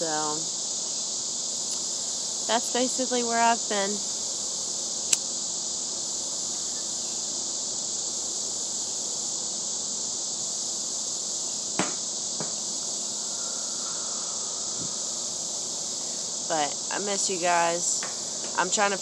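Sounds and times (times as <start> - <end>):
crickets chirping: 0.0 - 19.0
sharp click: 5.1 - 5.3.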